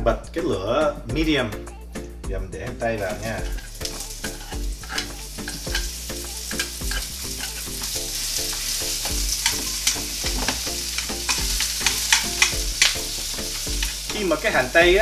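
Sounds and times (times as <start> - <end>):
background music with steady beat: 0.0 - 15.0
onion sizzling in oil: 2.7 - 15.0
chopsticks clicking against pan: 3.4 - 14.2.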